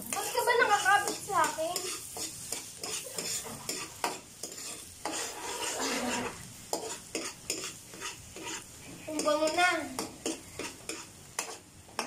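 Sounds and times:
garlic sizzling in butter: 0.0s - 12.0s
metal spoon scraping a pan: 0.0s - 12.0s.

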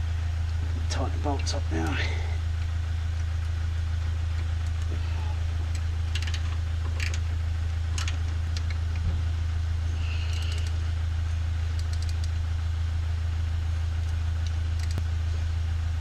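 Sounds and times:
low hum: 0.0s - 16.0s
ratchet spanner clicking: 10.3s - 10.8s, 11.8s - 12.3s, 14.8s - 15.0s.

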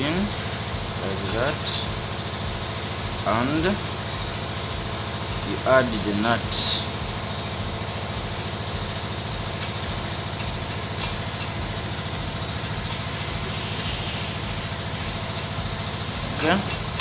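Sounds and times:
machine engine drone: 0.0s - 17.0s
faint clicks of metal parts: 1.2s - 2.0s, 3.0s - 5.7s, 9.5s - 11.7s, 12.6s - 13.0s, 16.3s - 17.0s.

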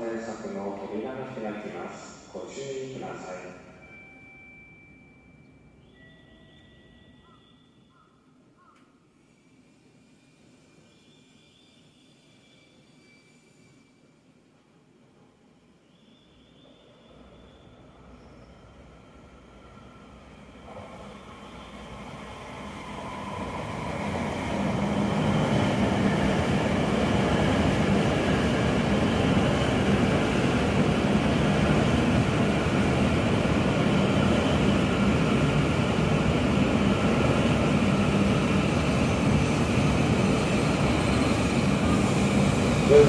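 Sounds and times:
train rolling noise: 16.3s - 43.0s.

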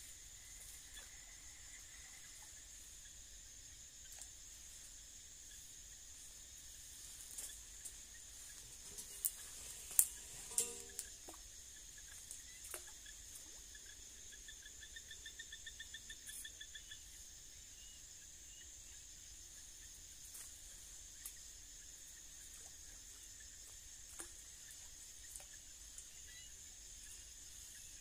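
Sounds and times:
steady high hiss: 2.7s - 11.4s
faint ticks: 7.2s - 14.0s, 20.3s - 26.5s.

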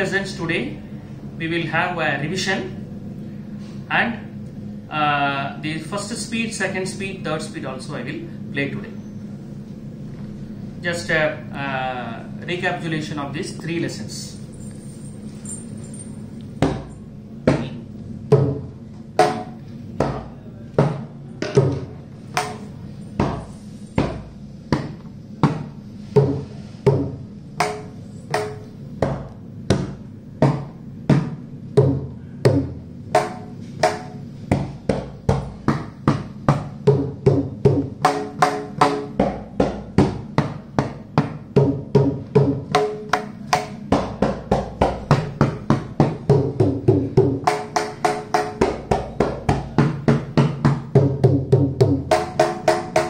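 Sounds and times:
mridangam drum strokes: 18.4s - 28.7s, 29.8s - 53.0s.

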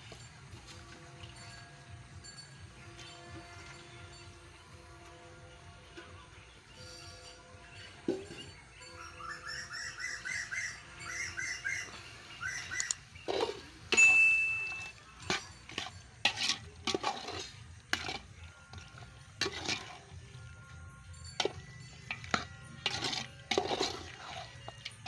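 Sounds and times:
bird calling: 8.8s - 14.9s
metal spoon clinking in pot: 13.9s - 25.0s.

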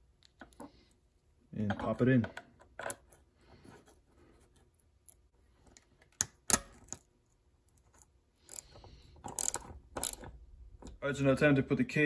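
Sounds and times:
small metal parts clicking: 7.8s - 10.4s.

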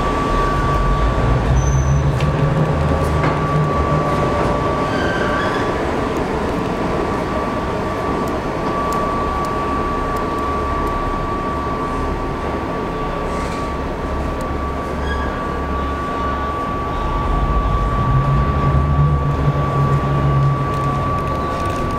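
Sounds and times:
train wheels on rails: 0.0s - 9.7s
steady high-pitched tone: 0.0s - 21.9s.

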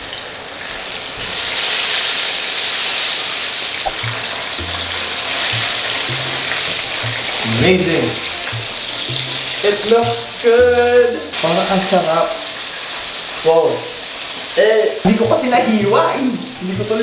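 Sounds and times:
chicken sizzling in hot oil: 0.0s - 17.0s
background music with low bass: 3.9s - 11.4s, 15.1s - 17.0s.

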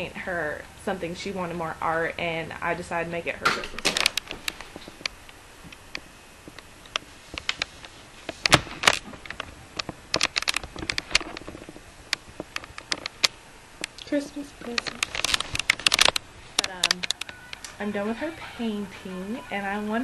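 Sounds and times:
webcam handling clicks and knocks: 8.4s - 13.3s, 14.8s - 17.3s.

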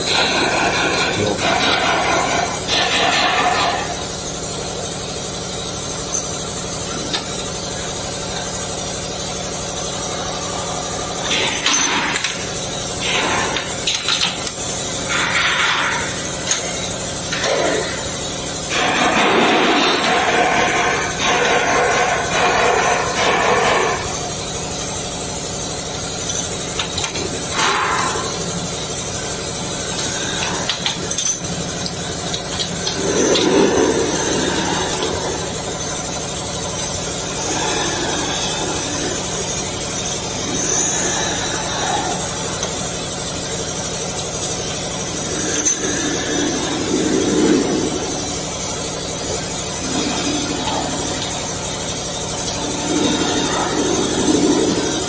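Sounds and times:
machinery hum: 0.0s - 55.0s
connectors clicking and knocking: 11.2s - 18.1s, 26.2s - 28.4s, 29.9s - 36.7s.

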